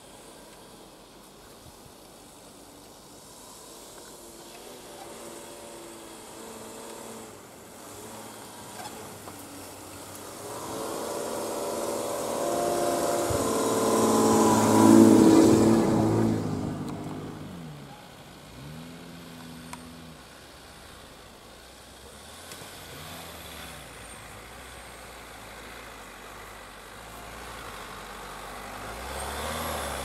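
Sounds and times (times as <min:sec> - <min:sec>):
tyres hissing in snow: 0:00.0 - 0:16.7
engine revving: 0:04.8 - 0:17.9, 0:27.0 - 0:30.0
van engine driving past: 0:06.4 - 0:21.1.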